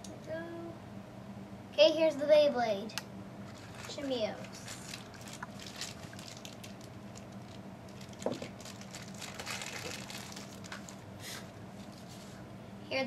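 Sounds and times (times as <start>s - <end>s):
low steady hum: 0.0s - 13.0s
packaging rustling and crinkling: 3.4s - 12.4s.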